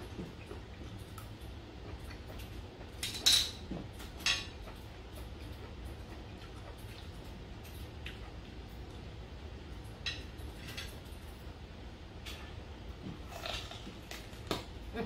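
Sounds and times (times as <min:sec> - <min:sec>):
utensils clinking on steel dishes: 0:03.0 - 0:03.6.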